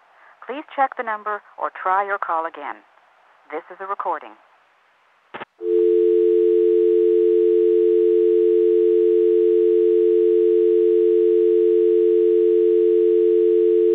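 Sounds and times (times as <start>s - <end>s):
two-tone telephone dial tone: 5.6s - 13.9s.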